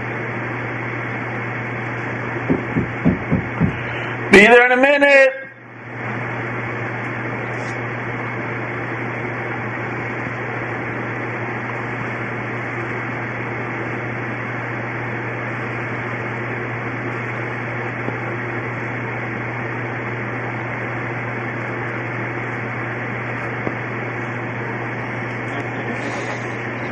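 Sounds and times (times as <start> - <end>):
mechanical hum with hiss: 0.0 - 26.9.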